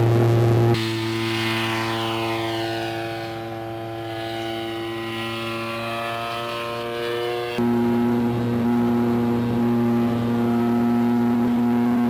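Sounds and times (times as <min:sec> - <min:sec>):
model airplane engine droning: 0:00.0 - 0:12.0.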